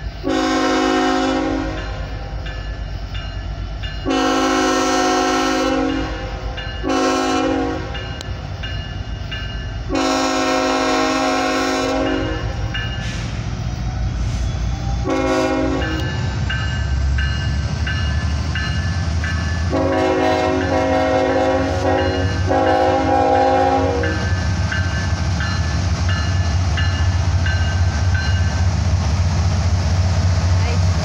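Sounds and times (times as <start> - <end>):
locomotives rumbling past: 0.0 - 31.0
locomotive air horn blasts: 0.2 - 2.0, 4.1 - 8.0, 9.9 - 12.5, 15.0 - 16.2, 19.7 - 24.2.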